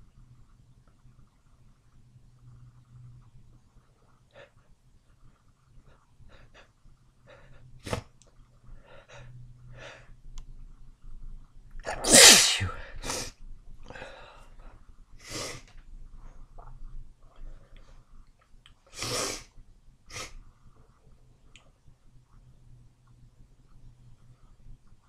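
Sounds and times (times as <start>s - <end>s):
person sneezing: 11.9s - 13.3s.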